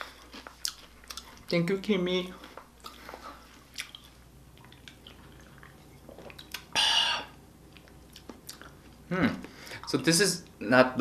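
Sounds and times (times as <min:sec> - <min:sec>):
sipping and swallowing: 0:02.8 - 0:08.9
person saying ahh: 0:06.8 - 0:07.3.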